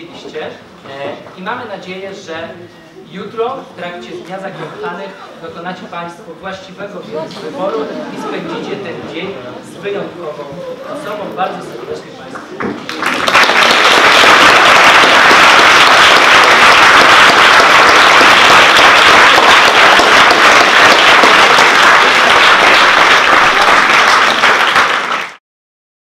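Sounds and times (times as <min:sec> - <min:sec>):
audience applauding: 0:12.2 - 0:25.4.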